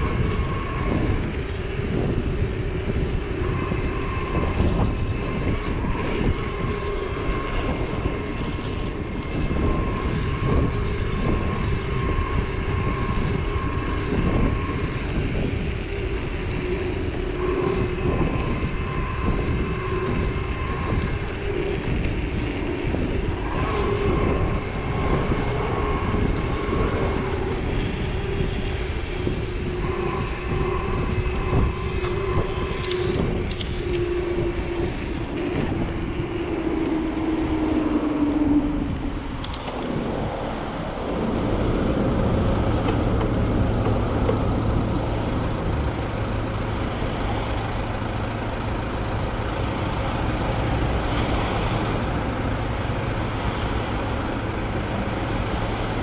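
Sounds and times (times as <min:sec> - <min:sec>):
electric motor whine: 0:00.0 - 0:56.0
idling cars hum: 0:00.0 - 0:56.0
wind noise: 0:00.0 - 0:56.0.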